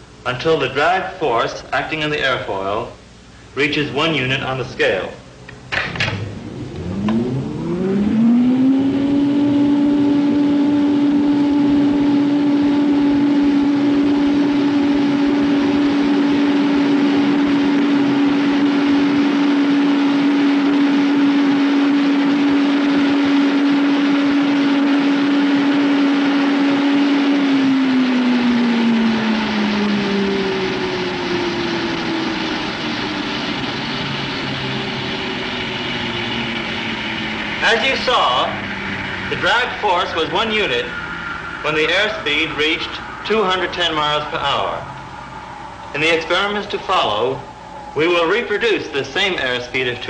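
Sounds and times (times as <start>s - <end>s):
blower whine: 0.0s - 50.0s
rush of air: 11.5s - 48.5s.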